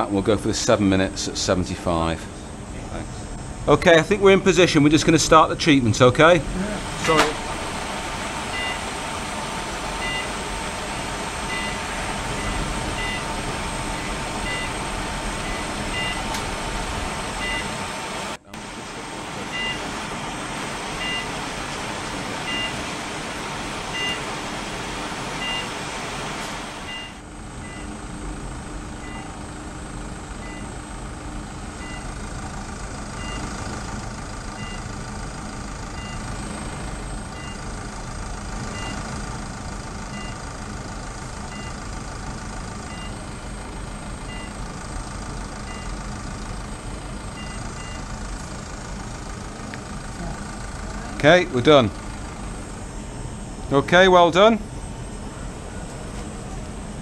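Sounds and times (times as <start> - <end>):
equipment hum and hiss: 0.0 - 57.0.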